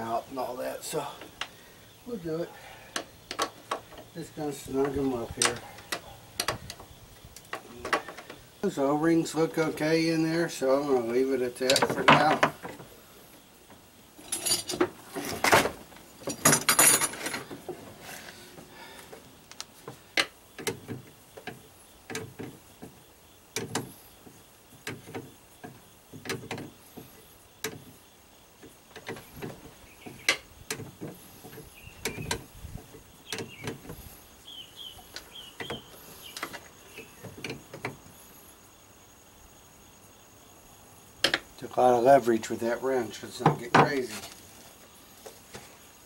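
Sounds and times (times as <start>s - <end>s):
tools rattling: 14.2s - 17.8s.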